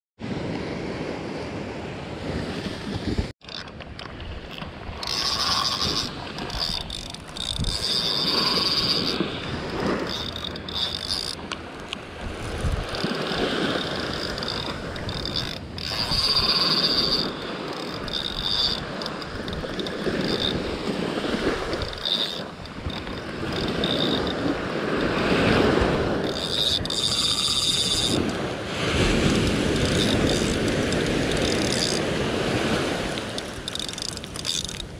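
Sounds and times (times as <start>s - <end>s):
wind buffeting microphone: 3.9s - 34.9s
small waves breaking on sand: 28.3s - 31.0s, 31.8s - 33.4s.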